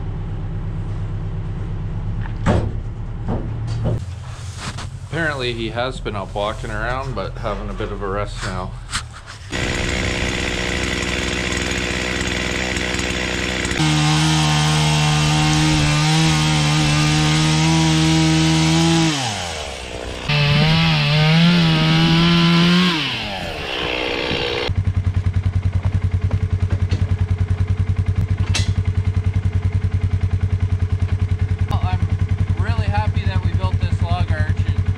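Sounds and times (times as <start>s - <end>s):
chainsaw cutting log: 8.5s - 24.7s
utility vehicle engine idling: 24.7s - 34.9s.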